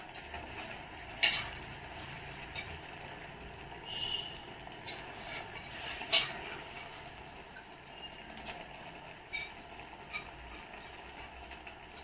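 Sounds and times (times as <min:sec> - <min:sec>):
ladle scraping metal pot: 0:01.1 - 0:02.9, 0:03.9 - 0:07.2, 0:09.2 - 0:11.1.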